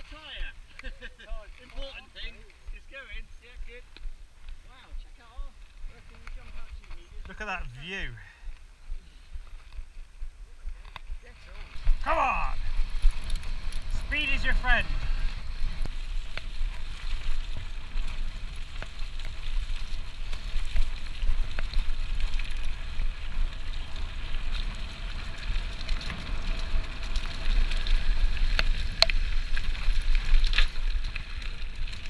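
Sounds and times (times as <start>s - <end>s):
bike rattling over bumps: 10.8s - 32.0s.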